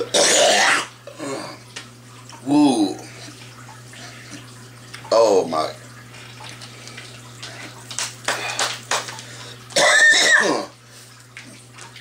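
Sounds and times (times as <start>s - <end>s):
man coughing: 0.0s - 1.5s, 9.8s - 10.7s.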